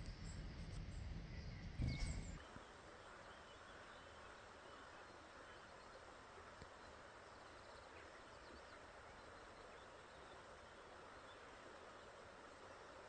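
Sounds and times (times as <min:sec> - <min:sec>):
rushing hiss of outdoor ambience: 0:00.0 - 0:13.0
faint high bird chirps: 0:01.4 - 0:02.4.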